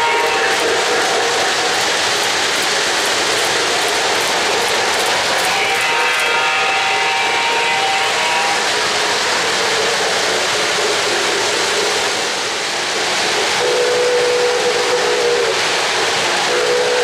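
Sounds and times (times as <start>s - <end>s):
model locomotive steam whistle: 0.0s - 1.8s, 5.4s - 8.9s, 13.6s - 15.6s, 16.4s - 17.0s
model trains rolling on track: 0.0s - 17.0s.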